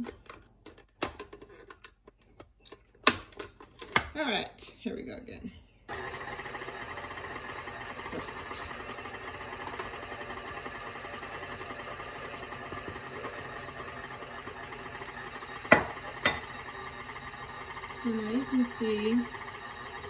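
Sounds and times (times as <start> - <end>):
stand mixer running: 5.9 - 20.0.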